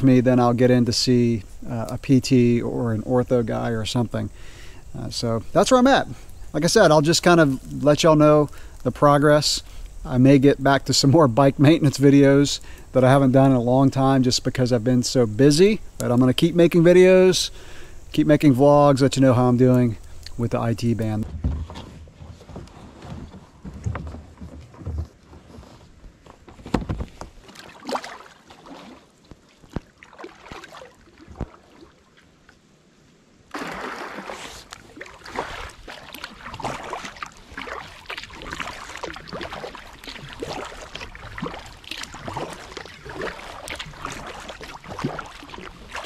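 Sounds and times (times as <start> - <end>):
paddle splashing through water: 26.6 - 32.3, 33.5 - 46.0.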